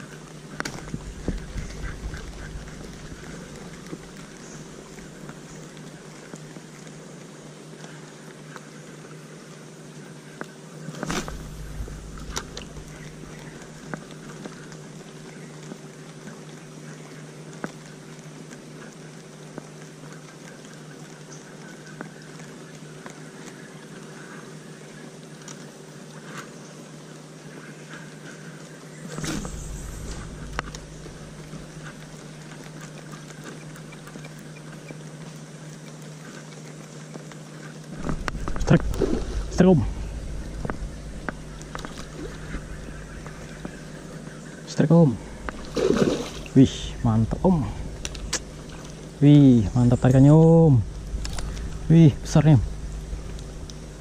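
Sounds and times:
steady low hum: 0:00.0 - 0:54.0
dull thumps with low rumble: 0:00.6 - 0:04.4, 0:11.0 - 0:14.0, 0:29.2 - 0:32.3, 0:38.0 - 0:44.3, 0:45.2 - 0:54.0
faint ticks: 0:29.4 - 0:39.0.

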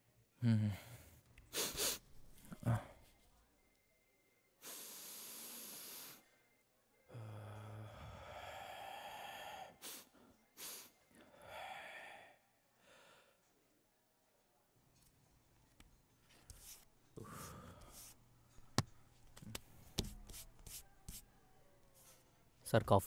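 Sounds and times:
man sniffing sharply: 0:01.5 - 0:02.1, 0:09.7 - 0:10.9
man breathing out: 0:07.1 - 0:13.3.

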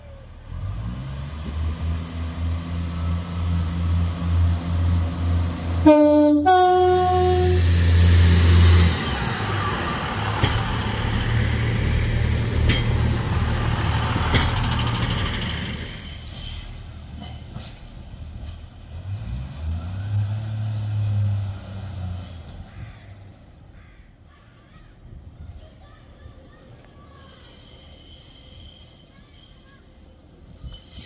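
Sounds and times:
train rolling past rumble: 0:00.0 - 0:23.8
diesel railbus engine drone: 0:00.0 - 0:25.2
two-tone train horn: 0:05.8 - 0:07.8
wheels clicking over rail joints: 0:08.6 - 0:15.8, 0:17.0 - 0:19.1.

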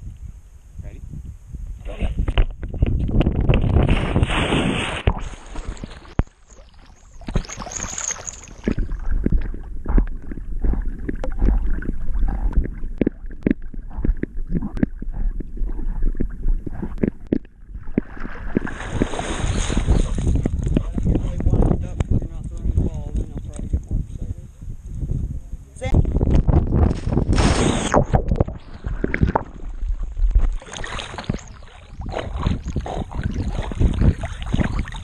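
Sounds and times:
water splashing and sloshing: 0:02.4 - 0:21.7, 0:26.3 - 0:35.0.

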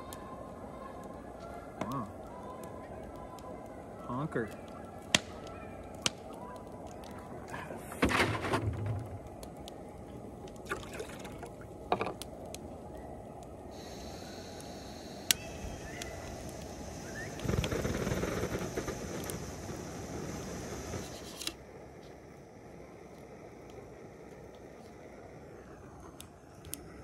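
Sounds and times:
faint high hiss: 0:00.0 - 0:27.0
gas camp stove rushing: 0:13.8 - 0:21.6.

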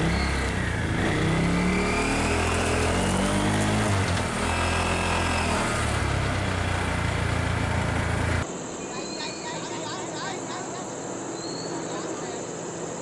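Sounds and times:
vehicle engine running: 0:00.0 - 0:08.5.

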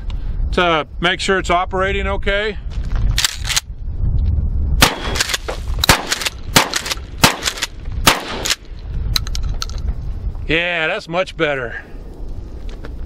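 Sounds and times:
shotgun shots: 0:04.8 - 0:08.7
shotgun pump action: 0:04.8 - 0:09.8.

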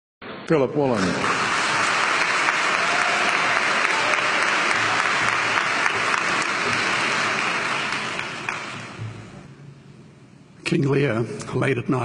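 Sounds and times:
audience applauding: 0:00.8 - 0:09.5.

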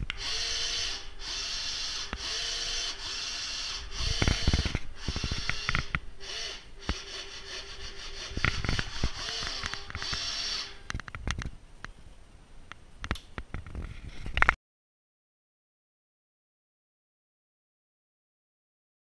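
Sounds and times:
small electric motor bursts: 0:00.2 - 0:10.8.

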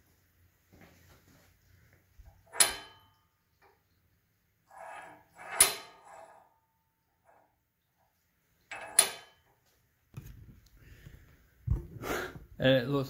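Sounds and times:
metal scraping: 0:04.6 - 0:09.5.

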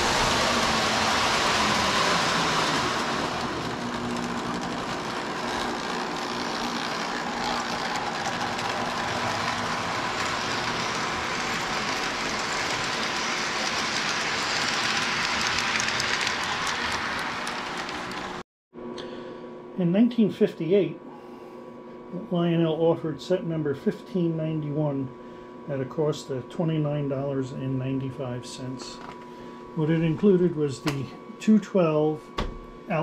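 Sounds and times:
toy train motor hum: 0:00.0 - 0:18.4
wheels clicking over rails: 0:00.0 - 0:18.4.

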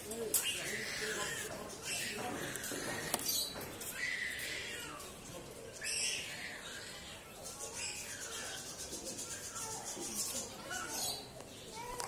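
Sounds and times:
high-pitched animal calls: 0:00.4 - 0:05.1.

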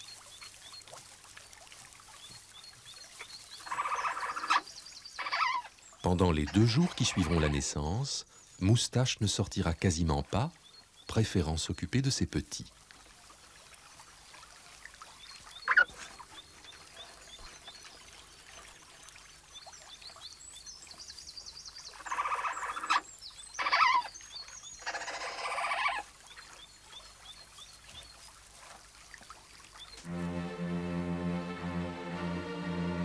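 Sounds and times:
otter cubs peeping: 0:02.3 - 0:08.0, 0:15.6 - 0:17.8, 0:21.9 - 0:24.2
otter cubs squealing: 0:03.7 - 0:04.6, 0:06.4 - 0:07.7, 0:15.7 - 0:15.9, 0:22.0 - 0:23.0, 0:23.6 - 0:24.1.

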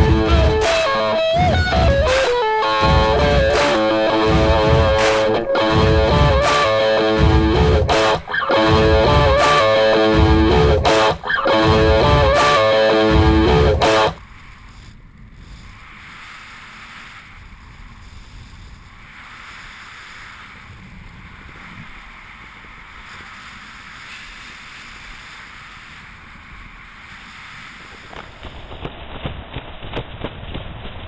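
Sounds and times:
rock music with electric guitar: 0:00.0 - 0:14.2
wind hissing on microphone: 0:00.0 - 0:31.0.

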